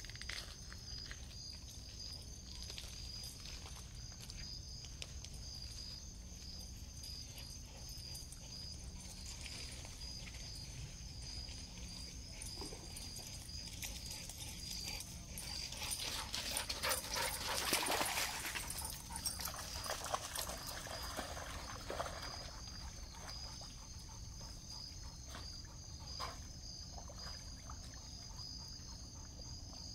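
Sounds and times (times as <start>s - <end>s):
crickets chirping: 0.0s - 29.9s
dog splashing in water: 16.0s - 23.4s.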